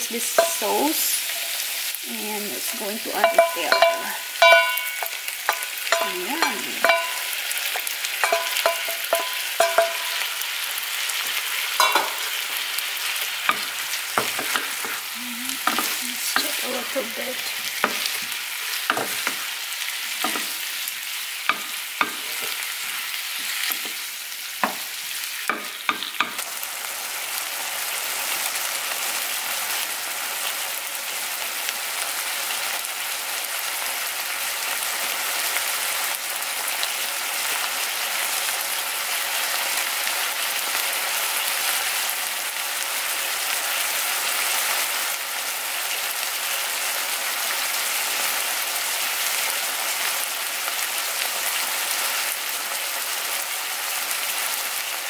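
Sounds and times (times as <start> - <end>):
food sizzling in a frying pan: 0.0 - 55.0
wooden spatula knocking on a pan: 3.2 - 6.1, 6.8 - 7.3, 8.2 - 10.2, 21.5 - 22.5.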